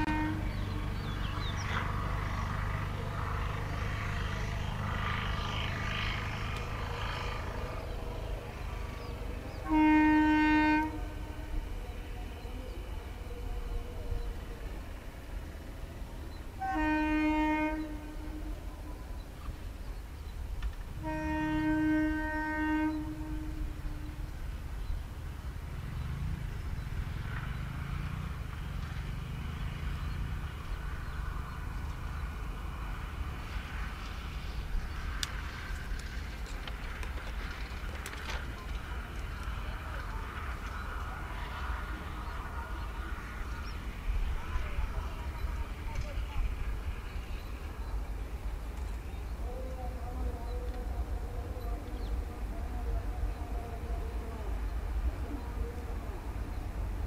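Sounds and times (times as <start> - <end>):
locomotive horn blast: 0.0 - 1.0, 4.1 - 13.8, 16.6 - 19.1, 21.0 - 24.4
freight train rumble: 0.0 - 57.0.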